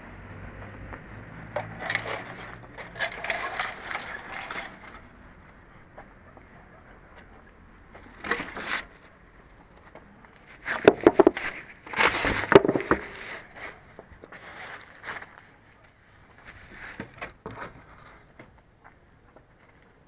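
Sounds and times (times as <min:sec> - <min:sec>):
barrier poles knocking and rattling: 0:01.3 - 0:05.4, 0:10.7 - 0:13.2
plastic tape crinkling: 0:01.4 - 0:05.4.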